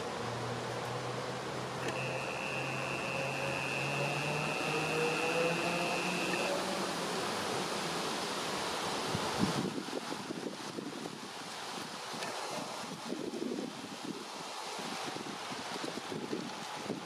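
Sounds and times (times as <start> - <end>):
rushing background noise: 0.0 - 17.0
click: 1.8 - 2.0
camera zoom motor whine: 1.8 - 6.7.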